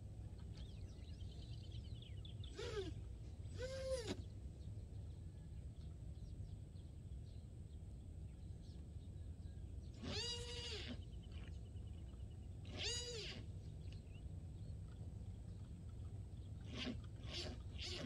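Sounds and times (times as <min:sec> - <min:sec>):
low background rumble: 0:00.0 - 0:18.0
drawn-out animal calls: 0:02.4 - 0:04.3, 0:10.0 - 0:11.5, 0:12.6 - 0:13.6, 0:16.4 - 0:18.0.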